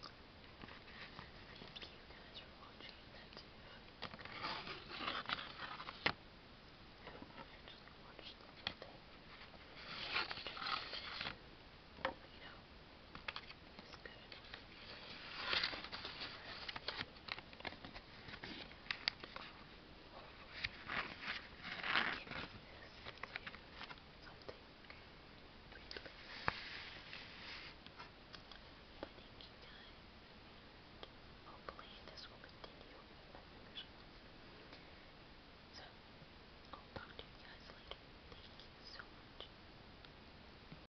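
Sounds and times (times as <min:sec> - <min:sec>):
cardboard rustling and scraping: 0:09.3 - 0:11.4, 0:14.4 - 0:19.4.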